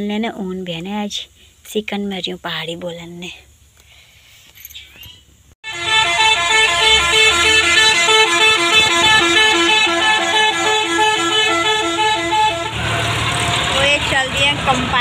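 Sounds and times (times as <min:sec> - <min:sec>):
harvester engine rumble: 0:04.4 - 0:15.0
two-note musical horn: 0:05.6 - 0:12.8.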